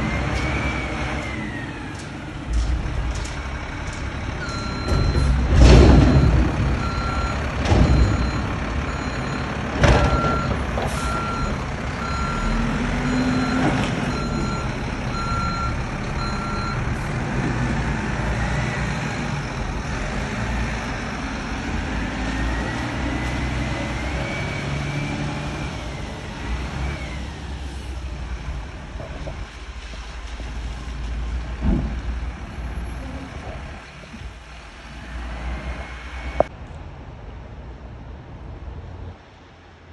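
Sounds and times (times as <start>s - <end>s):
diesel truck engine running: 0.0s - 36.5s
reversing beeper: 4.4s - 5.4s, 6.0s - 16.9s.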